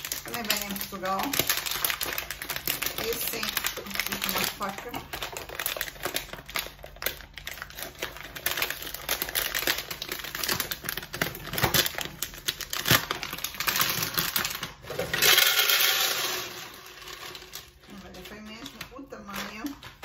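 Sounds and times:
plastic packet crinkling: 0.0s - 20.0s
pasta rattling into glass jar: 13.5s - 17.8s.

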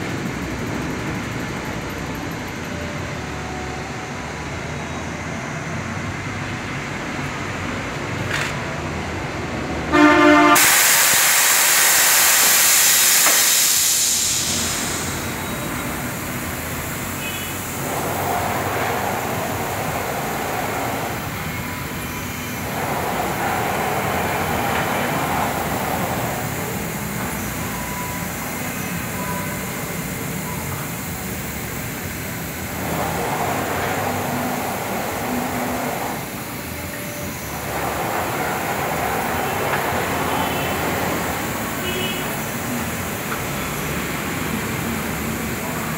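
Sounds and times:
machine whirring: 10.0s - 45.9s
compressed air hiss: 10.6s - 45.3s.

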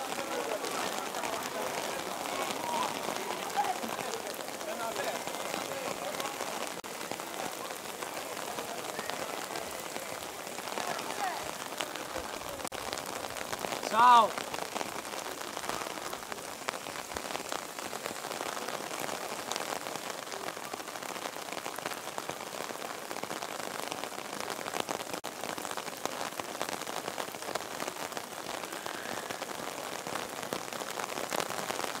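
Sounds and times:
rain falling on stone paving: 0.0s - 32.0s.

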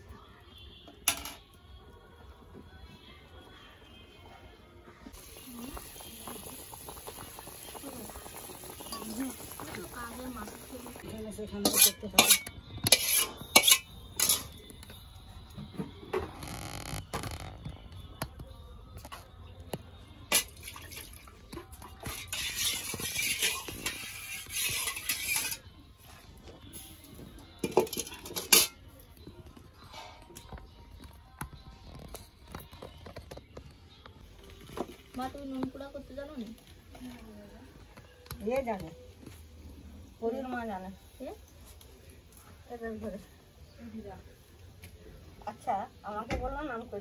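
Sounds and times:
steel bowls clinking: 8.4s - 14.9s, 22.0s - 25.7s, 27.6s - 28.8s
spatula clinking and scraping wok: 11.4s - 14.7s, 22.0s - 25.7s, 27.6s - 28.8s.

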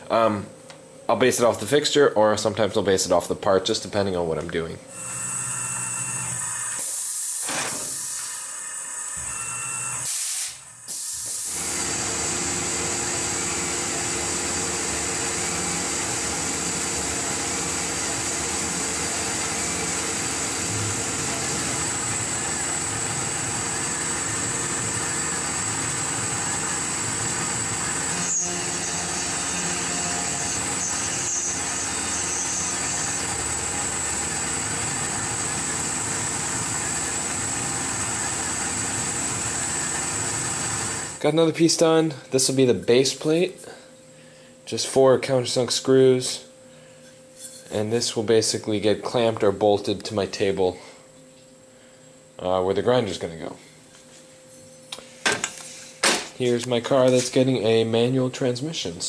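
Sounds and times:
mill cutting aluminum: 4.9s - 41.2s.

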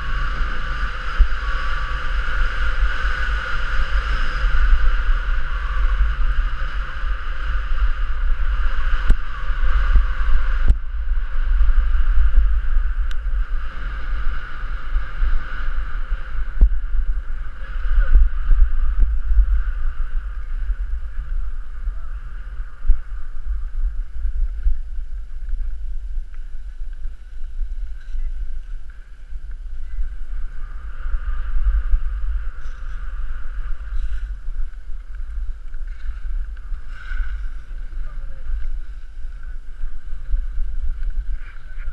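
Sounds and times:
wind buffeting microphone: 0.0s - 41.9s
skis sliding on packed snow: 26.4s - 41.9s.

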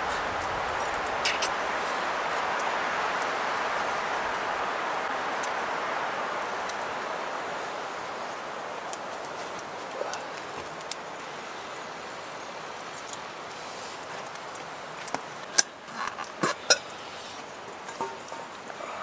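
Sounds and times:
steady rushing hiss: 0.0s - 19.0s.

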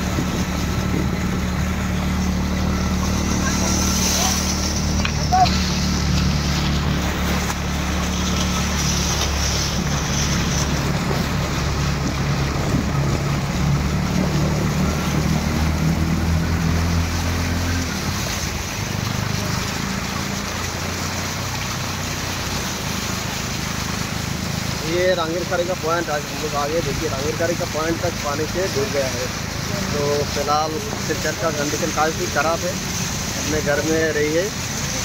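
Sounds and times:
wind noise on microphone: 0.0s - 1.9s, 9.8s - 15.6s
auto-rickshaw engine running: 0.0s - 35.0s
water washing around wheels: 0.0s - 35.0s.

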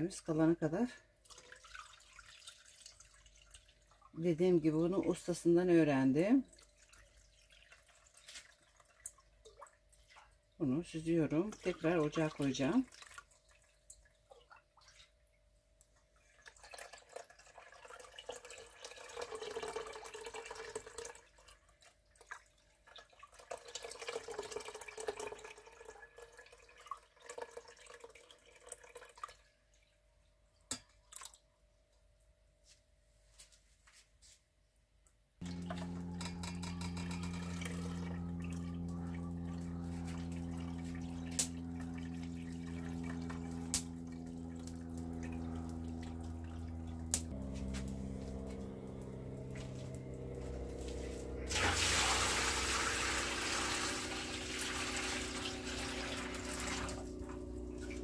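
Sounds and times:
liquid splashing and dripping: 1.2s - 4.2s, 6.4s - 10.6s, 11.5s - 30.0s, 30.6s - 31.5s, 35.4s - 58.0s
drone of held tones: 35.4s - 58.0s.

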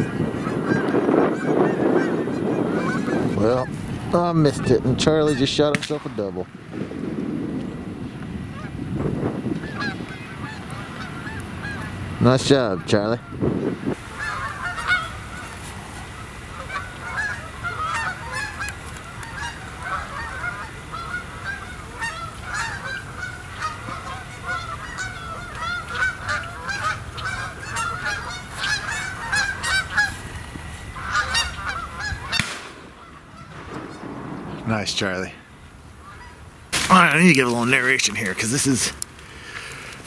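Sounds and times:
geese honking: 0.0s - 6.5s, 8.1s - 40.0s
low rumble: 32.4s - 35.7s.

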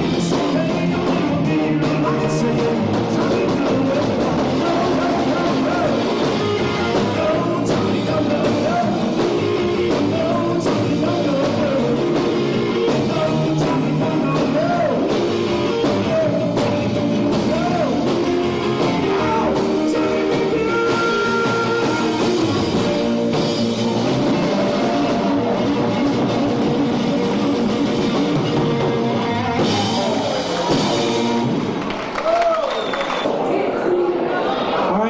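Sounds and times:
person singing: 0.0s - 26.0s
drum kit beat: 0.0s - 32.1s
live rock band playing: 0.0s - 33.4s.

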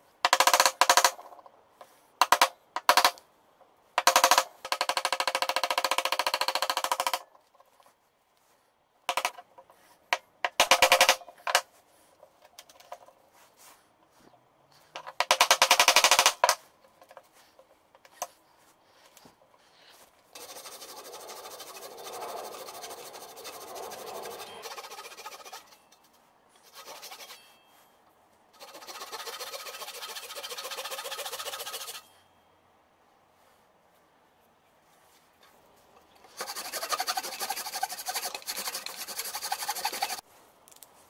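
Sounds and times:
hand saw cutting plywood: 20.4s - 25.8s, 26.6s - 27.4s, 28.6s - 32.0s, 36.3s - 40.2s.

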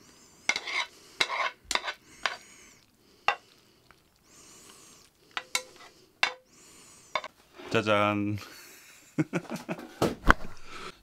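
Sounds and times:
pan sizzling: 0.0s - 7.5s.

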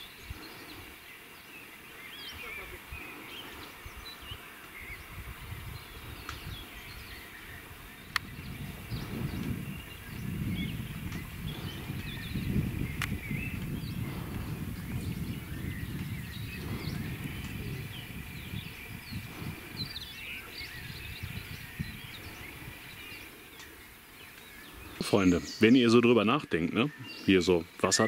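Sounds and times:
small birds chirping: 0.0s - 28.0s
wind gusting on microphone: 0.0s - 28.0s.

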